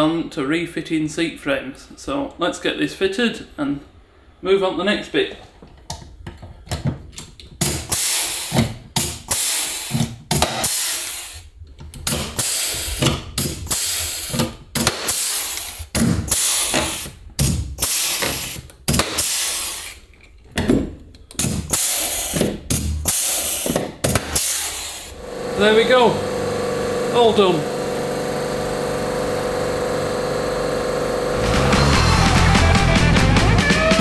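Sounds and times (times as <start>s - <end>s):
pneumatic tool whirring with air hiss: 7.6s - 11.5s, 12.1s - 20.0s, 21.4s - 26.5s.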